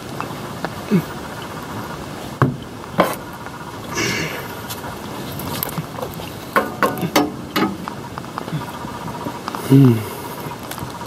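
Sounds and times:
background rush: 0.0s - 11.0s
oil filter knocks and clicks: 6.0s - 8.0s.

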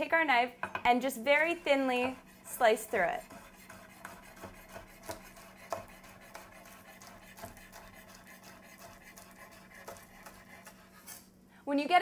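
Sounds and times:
knife tapping cutting board: 2.0s - 2.2s, 4.0s - 6.5s.

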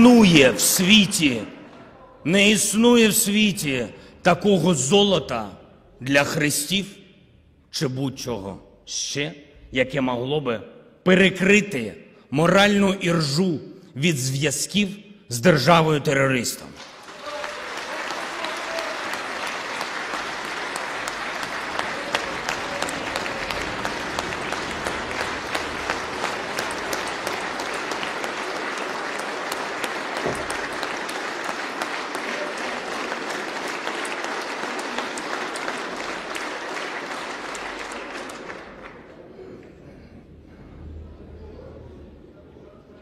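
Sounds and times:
audience applauding: 16.8s - 39.3s.

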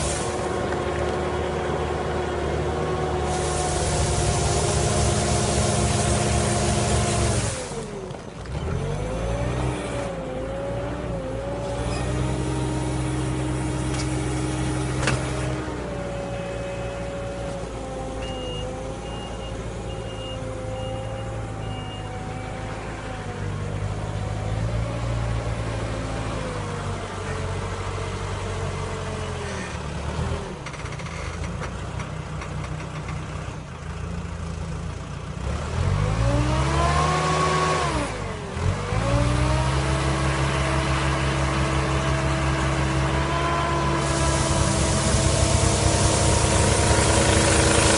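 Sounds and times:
diesel engine running: 0.0s - 47.9s
engine revving: 2.9s - 16.4s, 35.4s - 47.9s.

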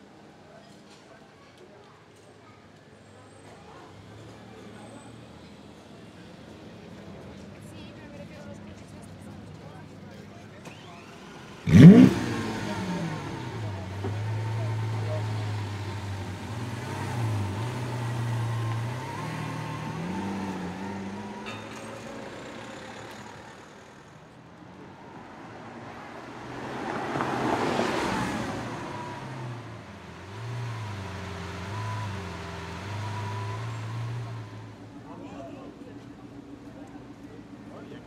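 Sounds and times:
car engine idling and revving: 4.0s - 38.0s
car driving past: 10.7s - 24.1s, 24.8s - 38.0s.

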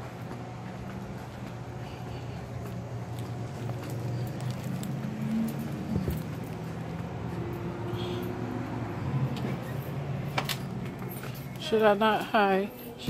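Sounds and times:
footsteps: 0.0s - 7.8s
steady low hum: 0.0s - 11.6s.

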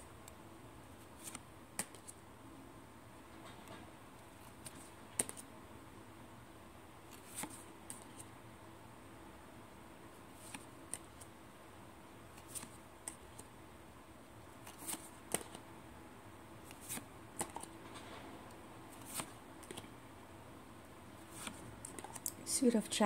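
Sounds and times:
cards snapping and sliding: 1.2s - 2.2s, 4.5s - 5.4s, 10.4s - 11.3s, 14.6s - 15.6s, 16.6s - 18.1s, 19.0s - 19.9s, 21.3s - 22.4s.

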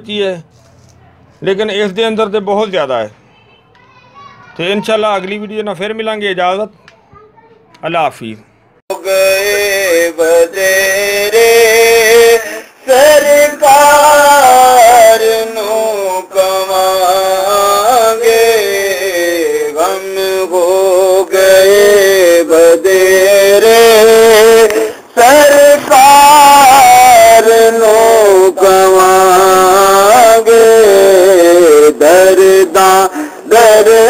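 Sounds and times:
solo voice singing chant: 8.9s - 34.0s.

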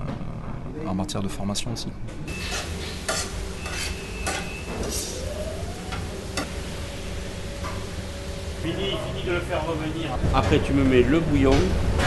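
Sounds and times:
utensil scraping a pan: 2.3s - 5.2s
food sizzling in a pan: 2.3s - 8.7s.

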